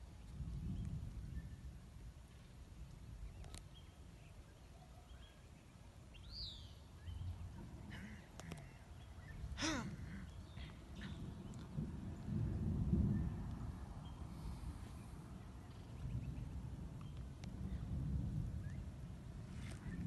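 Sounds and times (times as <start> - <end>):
birds chirping: 3.2 - 12.2.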